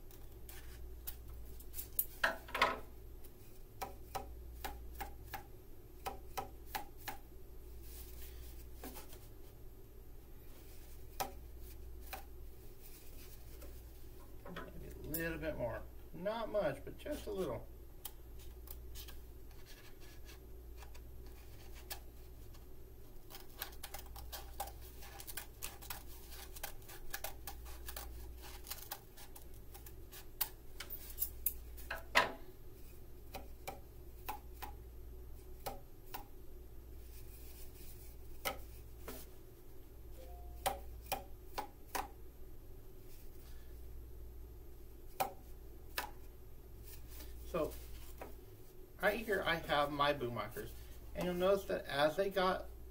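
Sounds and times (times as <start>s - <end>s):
steady low hum: 0.0s - 52.9s
scissors cutting cardboard tube: 23.2s - 31.2s.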